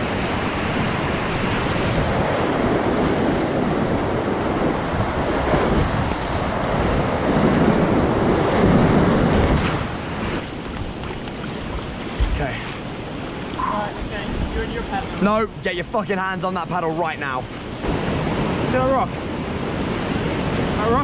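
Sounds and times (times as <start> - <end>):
wind on microphone: 0.0 - 15.0
whitewater rushing and crashing: 0.0 - 21.0.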